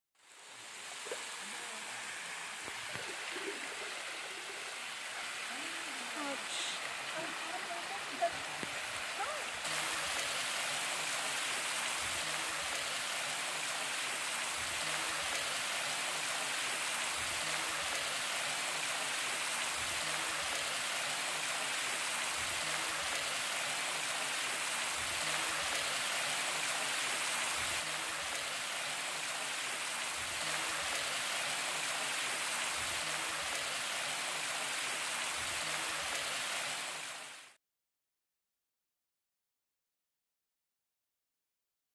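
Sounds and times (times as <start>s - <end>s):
waterfall rushing: 0.2s - 37.6s.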